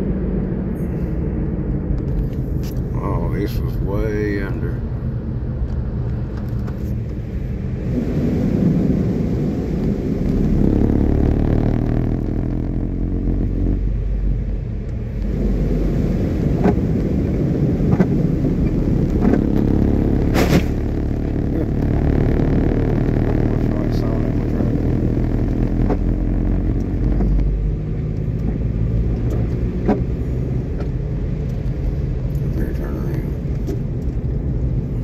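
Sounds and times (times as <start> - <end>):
tyres and engine rumbling: 0.0 - 35.0
water spraying against a vehicle: 6.8 - 10.7.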